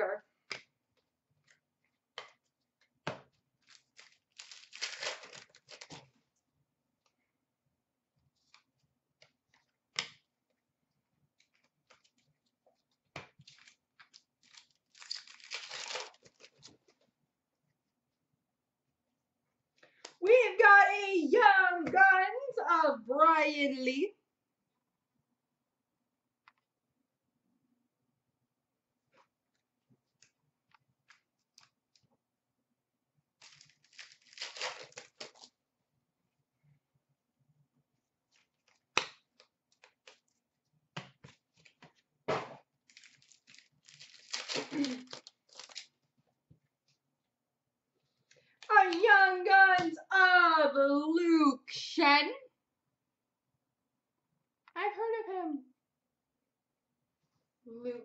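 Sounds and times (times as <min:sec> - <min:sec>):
wrapper crinkling: 0:03.6 - 0:06.1, 0:13.4 - 0:16.7, 0:33.4 - 0:35.5, 0:42.8 - 0:46.0
wrapper ripping: 0:03.6 - 0:06.1, 0:13.4 - 0:16.7, 0:33.4 - 0:35.5, 0:42.8 - 0:45.9
wrapper snapping: 0:03.6 - 0:06.1, 0:13.2 - 0:16.7, 0:33.4 - 0:35.5, 0:42.9 - 0:45.9
cards shuffled: 0:42.9 - 0:45.9.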